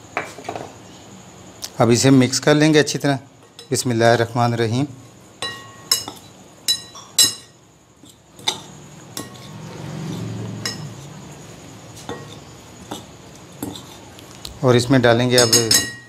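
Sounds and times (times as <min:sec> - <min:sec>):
metal spoons clinking on glass bowl: 0:05.4 - 0:09.6, 0:10.6 - 0:11.1, 0:15.2 - 0:16.0.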